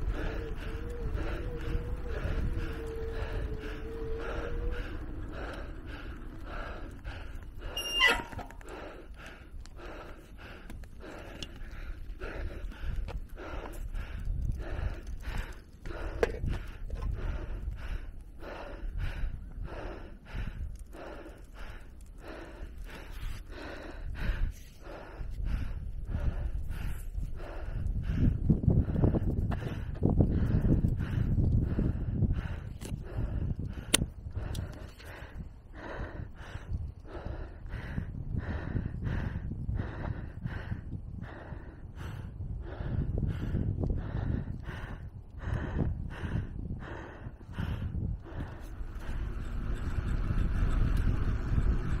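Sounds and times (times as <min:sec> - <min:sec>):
low steady rumble: 0:00.0 - 0:52.0
person breathing hard: 0:00.0 - 0:52.0.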